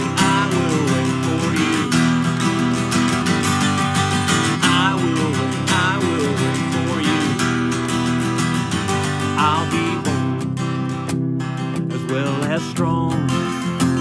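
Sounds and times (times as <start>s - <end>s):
man singing: 0.0s - 10.7s, 11.7s - 14.0s
acoustic guitar strumming: 0.0s - 14.0s.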